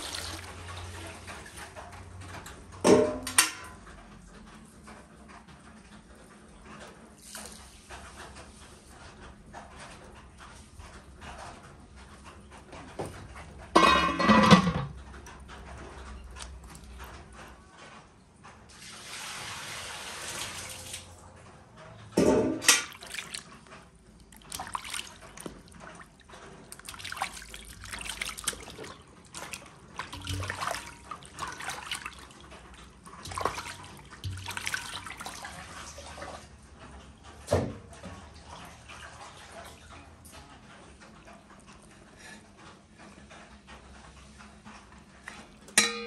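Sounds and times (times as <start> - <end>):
water splashing: 0.0 - 1.7, 22.7 - 36.5
water pouring: 0.0 - 1.8, 18.7 - 21.1, 22.7 - 23.7, 24.3 - 36.5.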